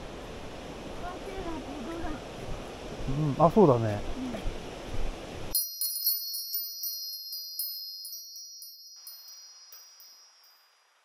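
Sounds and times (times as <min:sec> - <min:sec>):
stream rushing: 0:00.0 - 0:05.6
high tinkling chime: 0:05.5 - 0:11.0.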